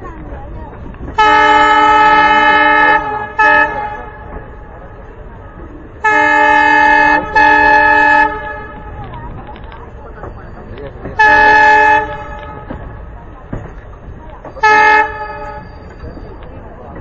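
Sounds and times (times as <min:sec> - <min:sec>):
train running noise: 0:00.0 - 0:17.0
locomotive horn blasts: 0:01.1 - 0:04.7, 0:06.0 - 0:09.1, 0:11.1 - 0:12.9, 0:14.6 - 0:15.9.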